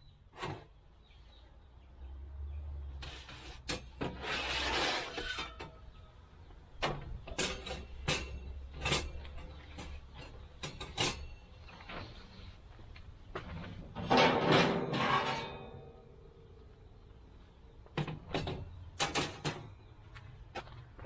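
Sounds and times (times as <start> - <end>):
metal scraping slide: 3.0 - 5.9, 13.9 - 16.0
sharp metal clanks and knocks: 6.8 - 11.7, 13.9 - 16.4, 18.0 - 19.8.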